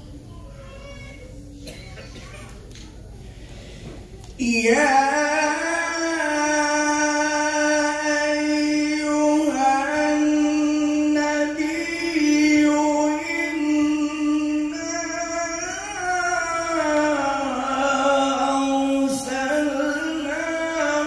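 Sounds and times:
person chanting: 0:04.4 - 0:21.0.

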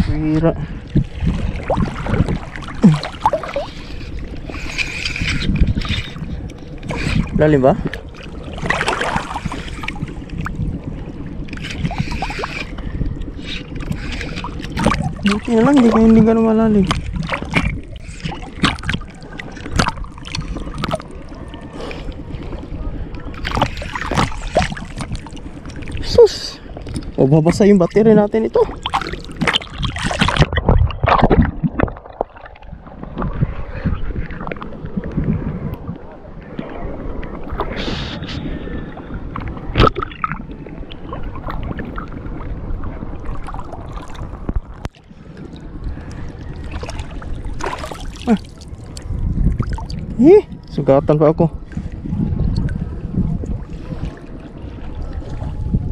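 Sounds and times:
muffled low rumble: 0:00.0 - 0:55.9
water sloshing against camera: 0:00.0 - 0:55.9
water splashes: 0:00.0 - 0:55.9
small splashes: 0:46.5 - 0:49.0.

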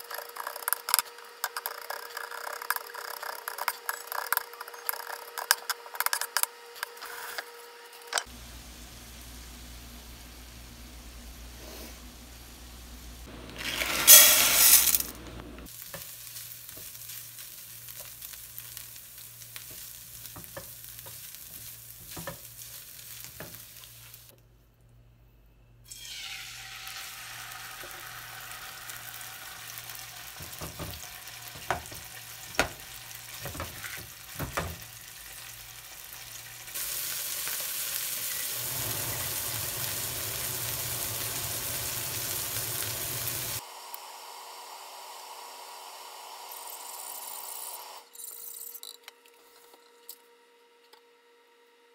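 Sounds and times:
dry rice pouring into a pot: 0:13.6 - 0:15.1
chicken sizzling in a frying pan: 0:15.6 - 0:24.3, 0:25.9 - 0:47.6.

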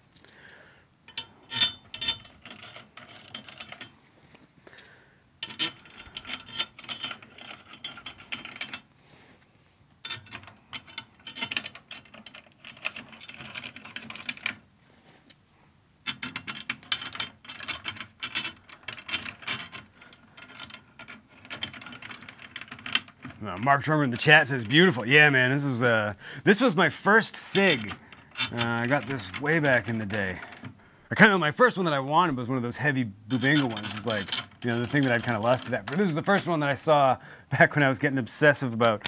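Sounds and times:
drum tension rods ratchet clicking: 0:05.4 - 0:08.8, 0:16.1 - 0:30.8, 0:33.3 - 0:36.9.

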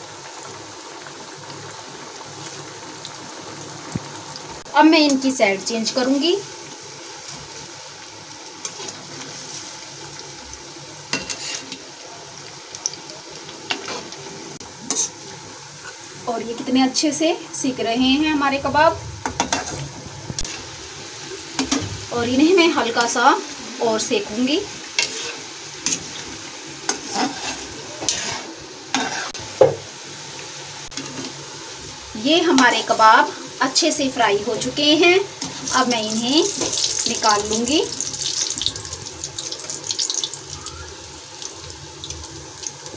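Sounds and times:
deep-frying sizzle: 0:00.0 - 0:42.9
metal spoon scraping pan: 0:25.0 - 0:26.3, 0:26.9 - 0:29.4.

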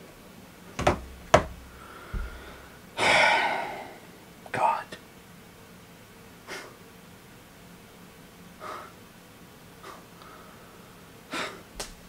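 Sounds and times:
faint steady hum: 0:00.0 - 0:12.0
man breathing out through nose: 0:01.7 - 0:04.0, 0:08.6 - 0:09.0, 0:09.8 - 0:11.6.

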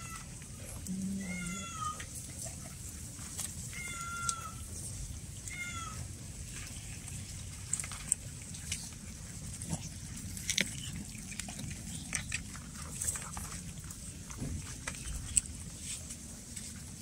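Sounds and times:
cats chewing and crunching: 0:00.0 - 0:17.0.

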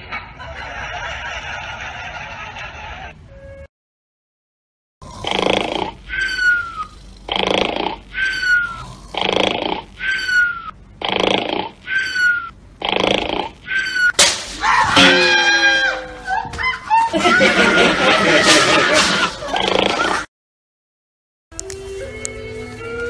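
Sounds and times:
loud laughing: 0:00.0 - 0:03.2, 0:14.6 - 0:20.3
person snoring with whistle: 0:05.0 - 0:14.1
sharp crack: 0:14.2 - 0:14.7.

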